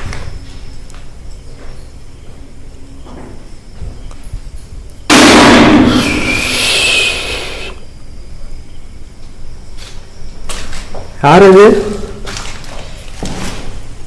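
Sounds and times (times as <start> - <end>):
harsh burst of noise: 5.1 - 7.8.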